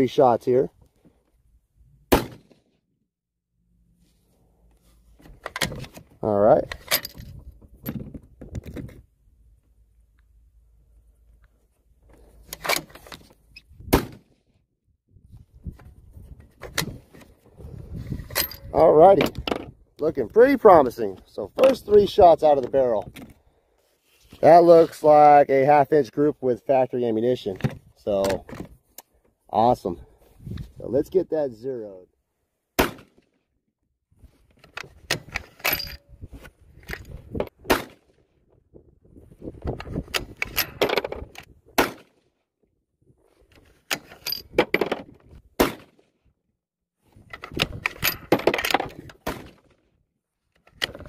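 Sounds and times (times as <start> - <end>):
rifle handling clacks and knocks: 5.2 - 9.1, 11.4 - 13.4, 21.5 - 22.0, 34.5 - 36.1, 43.4 - 46.1, 47.2 - 49.9, 50.5 - 51.0.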